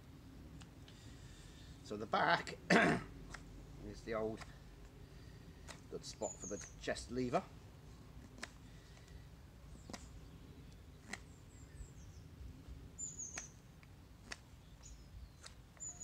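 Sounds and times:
small birds chirping: 3.1 - 16.0
knife cutting wood: 3.2 - 5.0, 5.6 - 6.8, 8.2 - 9.2, 9.8 - 10.2, 11.0 - 11.4, 13.3 - 15.9.

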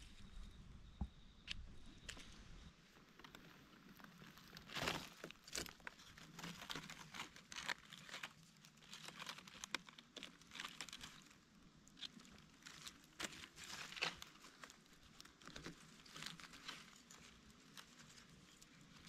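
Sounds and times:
dry leaves crunching: 3.2 - 11.4, 12.0 - 19.0.

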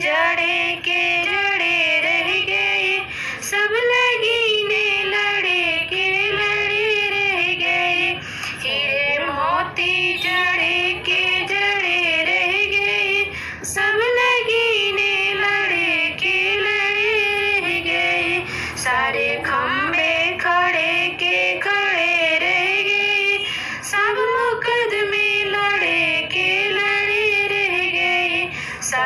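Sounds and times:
woman singing devotional song: 0.0 - 29.0.

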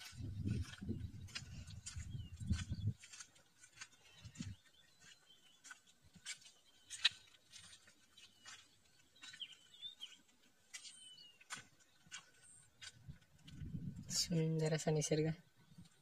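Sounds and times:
birds chirping and whistling: 0.0 - 14.2.

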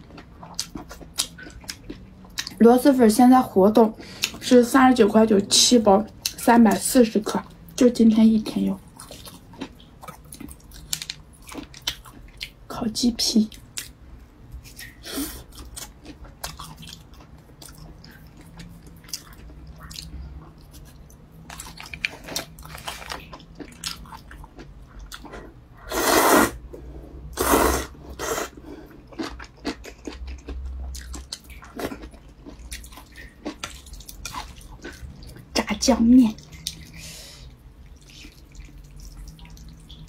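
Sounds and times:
chewing mouth sounds: 0.0 - 2.6, 27.4 - 35.5, 37.8 - 40.0
slurping noodles: 25.8 - 26.6, 27.3 - 28.6.

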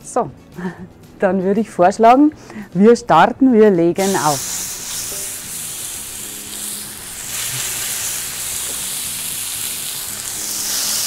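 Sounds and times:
meat sizzling in a pan: 4.0 - 11.0.

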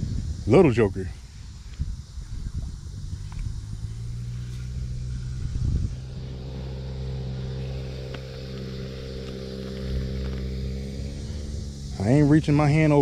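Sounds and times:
low rumble: 1.5 - 13.0
faint ticks: 1.6 - 1.9, 2.6 - 3.6, 7.3 - 12.0
engine humming: 1.8 - 13.0.

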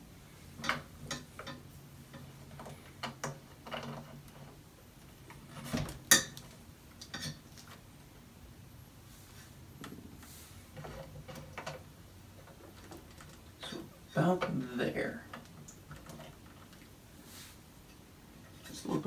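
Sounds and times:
clicks and knocks from mount joints: 0.6 - 4.5.

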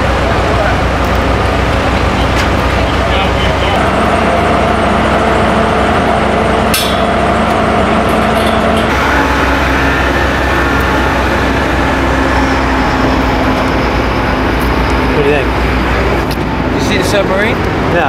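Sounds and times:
heavy machinery engines running: 0.0 - 18.0
steady hum tones: 0.0 - 18.0
sharp metal clank: 6.7 - 7.2.

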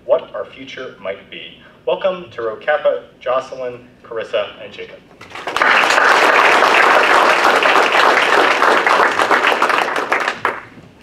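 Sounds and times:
audience applauding: 5.2 - 10.8.

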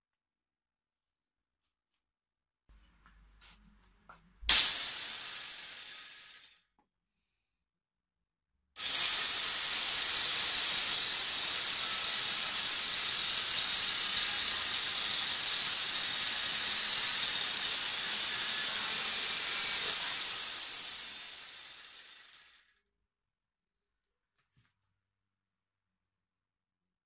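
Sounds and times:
angle grinder chainsaw cutting wood: 4.5 - 6.6, 8.8 - 22.7.

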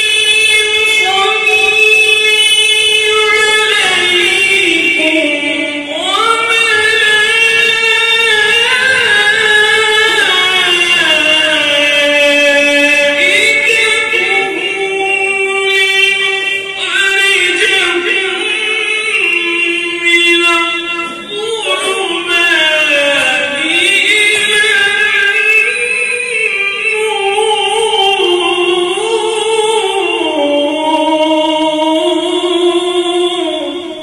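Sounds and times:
man reciting melodically: 0.0 - 34.0.

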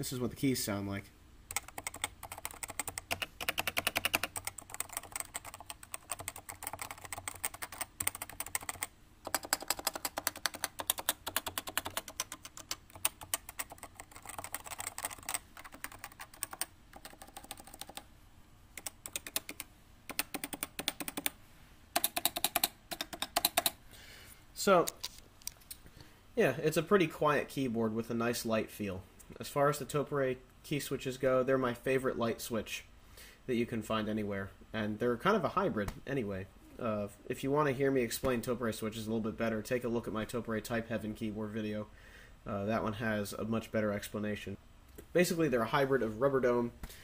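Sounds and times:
fast keyboard typing: 1.5 - 18.1, 18.8 - 21.4, 22.0 - 23.8.

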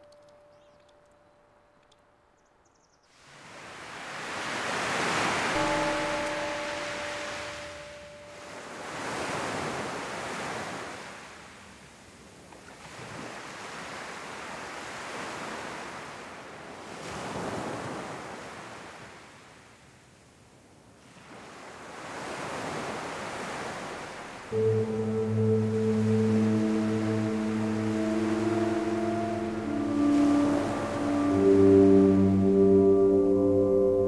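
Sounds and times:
waves breaking on a beach: 3.2 - 33.0
held musical tone: 5.6 - 9.0, 24.4 - 34.0.

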